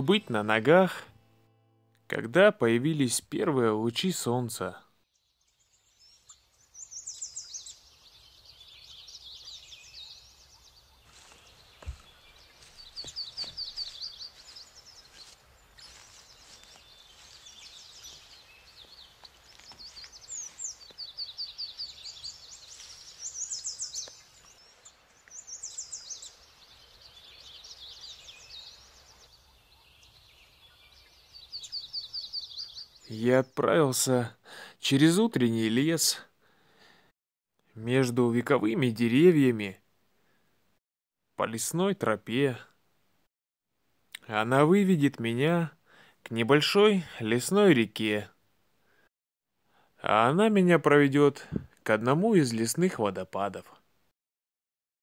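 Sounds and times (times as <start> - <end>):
songbirds trilling: 2.1 - 34.2.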